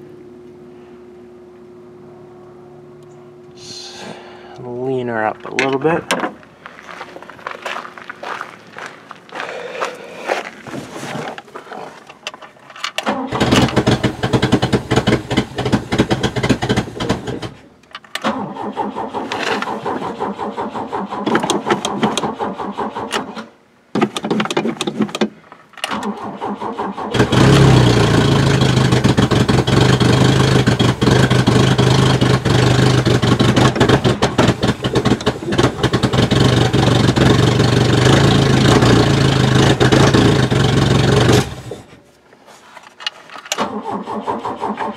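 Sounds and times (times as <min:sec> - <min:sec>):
car engine starting and idling: 0:12.5 - 0:24.3, 0:25.8 - 0:41.9, 0:43.5 - 0:44.9.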